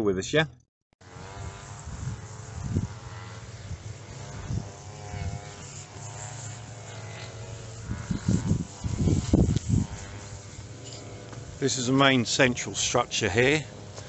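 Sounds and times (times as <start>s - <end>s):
strimmer engine droning: 1.0s - 14.0s
wind buffeting microphone: 1.4s - 5.8s, 7.7s - 10.6s.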